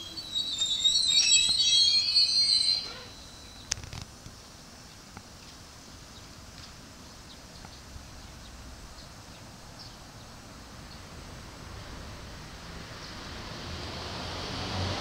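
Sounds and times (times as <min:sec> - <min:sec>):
faint short high chirps: 0:00.0 - 0:03.7
low hum of train equipment: 0:00.0 - 0:15.0.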